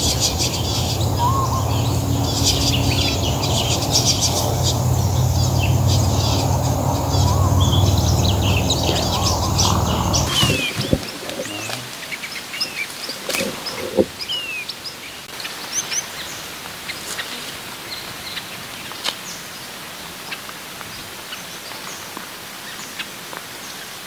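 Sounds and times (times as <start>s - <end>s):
finches chirping and whistling: 0.0s - 11.7s.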